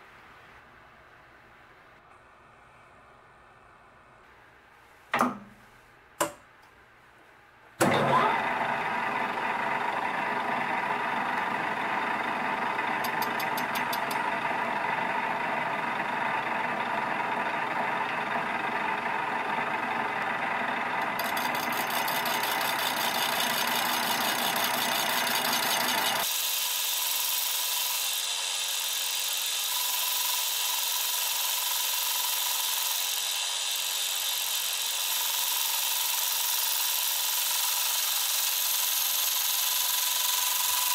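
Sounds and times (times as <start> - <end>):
lathe running: 7.8 - 40.9
machine clicks: 13.0 - 14.2
saw blade cutting metal: 13.0 - 14.3, 21.0 - 40.9.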